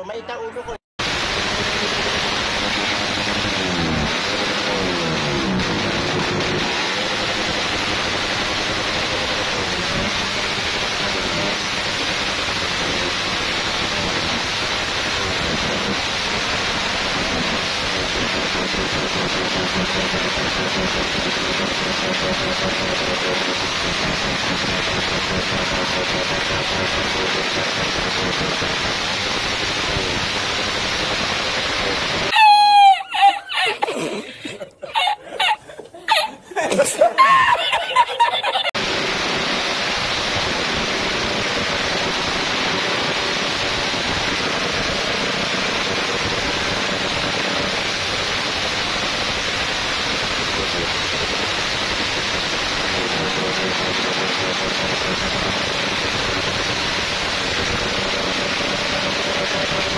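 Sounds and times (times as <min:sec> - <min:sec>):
motorcycle engine at high revs: 0:01.0 - 0:32.3, 0:38.7 - 0:59.9
man laughing loudly: 0:32.3 - 0:38.8.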